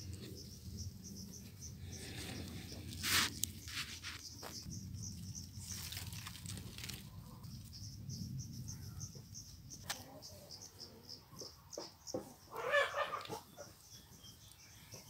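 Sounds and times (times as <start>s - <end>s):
cricket chirping: 0.0s - 15.0s
rustling: 2.0s - 7.5s.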